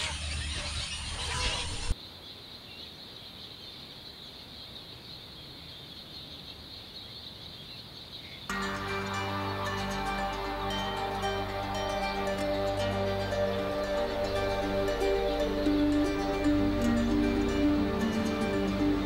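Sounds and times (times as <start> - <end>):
high-pitched drone: 8.5 - 19.0.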